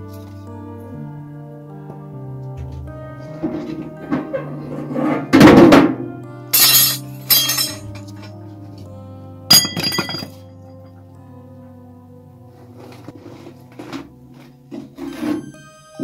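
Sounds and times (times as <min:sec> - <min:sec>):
background music: 0:00.0 - 0:16.0.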